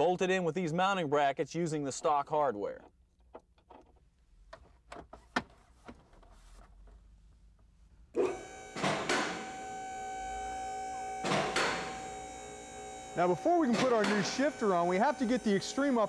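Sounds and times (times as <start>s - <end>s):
hydraulic pump motor humming: 8.2s - 16.0s.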